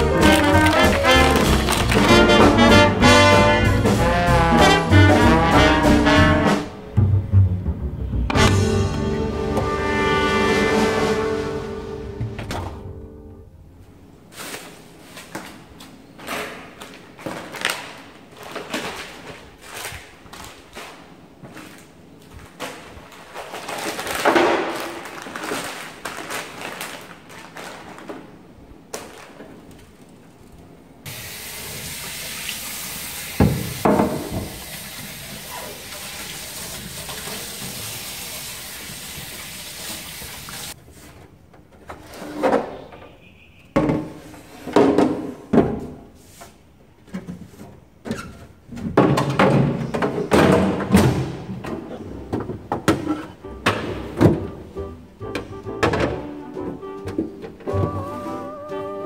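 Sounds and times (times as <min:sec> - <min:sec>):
faucet spraying water: 0:31.1 - 0:40.8.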